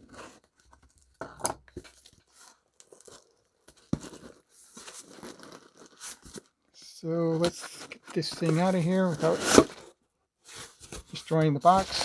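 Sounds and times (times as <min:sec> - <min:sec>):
cardboard box tearing and scraping: 0:08.3 - 0:09.9.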